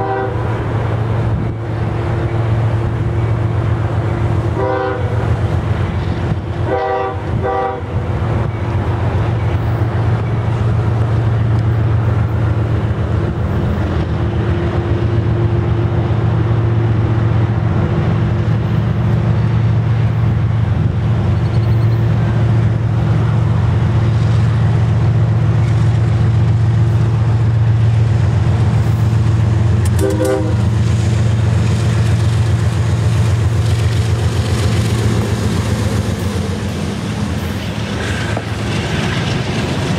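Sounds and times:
locomotive horn toots: 0.0 - 0.6, 4.5 - 5.3, 6.6 - 8.1, 29.8 - 30.8
locomotive rumble: 0.0 - 39.9.

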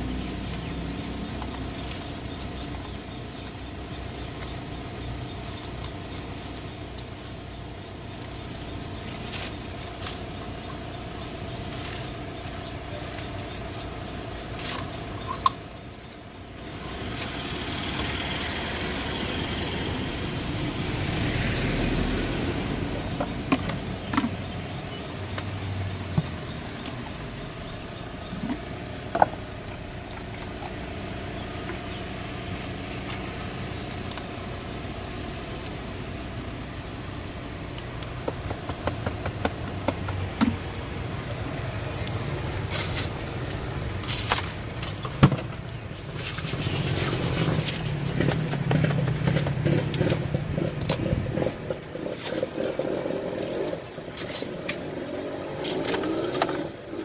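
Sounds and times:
vehicle passing: 16.6 - 24.5, 45.9 - 57.0.

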